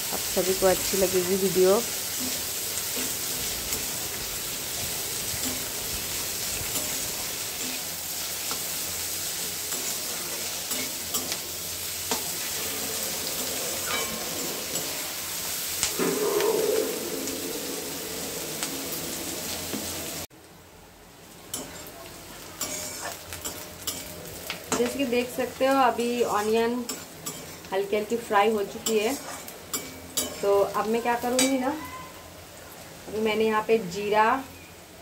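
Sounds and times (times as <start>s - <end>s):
onions sizzling in hot oil: 0.0s - 20.3s, 21.1s - 35.0s
metal spatula scraping pan: 12.1s - 19.0s, 22.6s - 24.1s, 28.8s - 30.5s.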